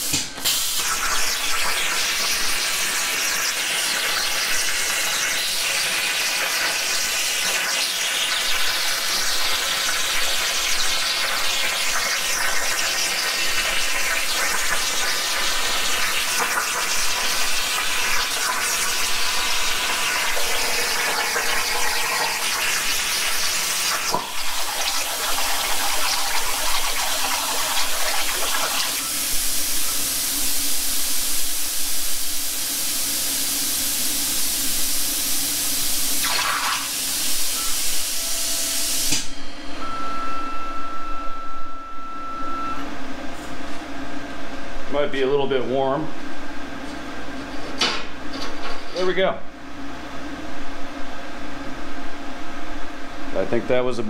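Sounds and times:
plasma torch hissing: 0.0s - 39.3s
air hissing with low hum: 0.0s - 54.0s.

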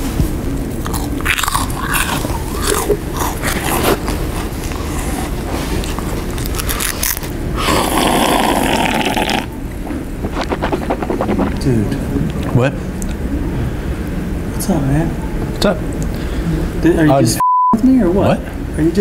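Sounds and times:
crunching and chewing food: 0.7s - 13.2s
slurping from a cup: 0.9s - 12.0s.

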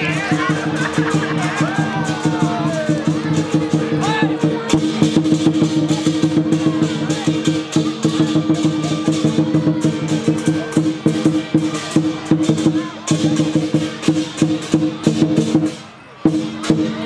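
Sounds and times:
large drum beaten fast: 0.0s - 17.0s.

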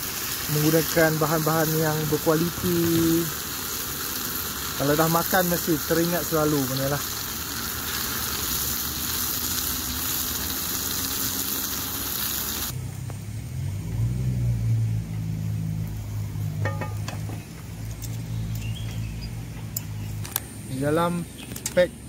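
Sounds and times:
meat sizzling in a pan: 0.0s - 12.7s.

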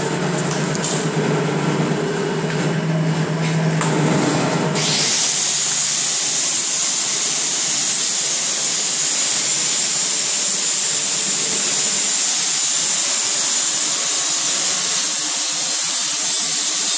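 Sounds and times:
pulverizer machine hissing: 4.8s - 16.9s.

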